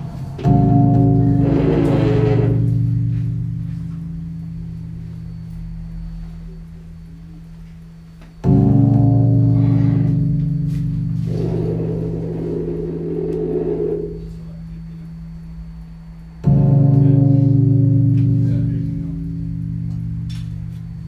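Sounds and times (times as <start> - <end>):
low drone chord: 0.0 - 6.2, 8.4 - 14.9, 16.4 - 20.3
hazy layer of noise: 0.0 - 21.0.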